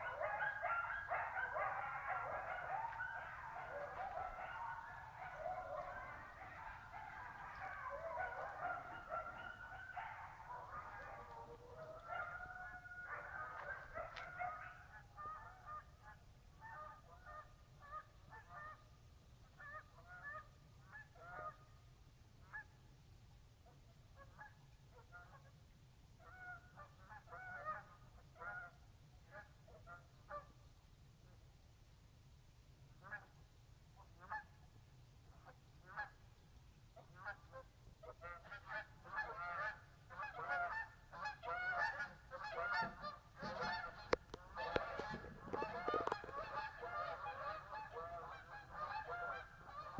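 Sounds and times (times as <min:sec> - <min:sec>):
geese honking: 0:00.0 - 0:15.9, 0:35.3 - 0:36.2, 0:37.0 - 0:49.9.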